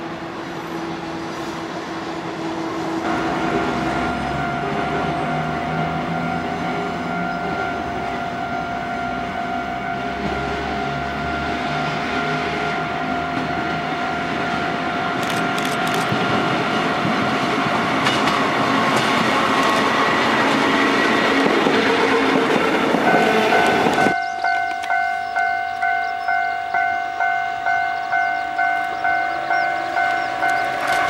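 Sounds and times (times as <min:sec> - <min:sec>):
electric train running: 0:00.0 - 0:31.0
level-crossing bell ringing: 0:03.0 - 0:14.9, 0:23.1 - 0:31.0.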